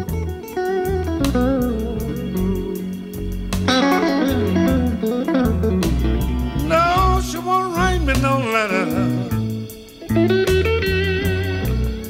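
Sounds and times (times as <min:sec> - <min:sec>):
electric guitar lines: 0:00.0 - 0:12.0
bass line: 0:06.3 - 0:09.6.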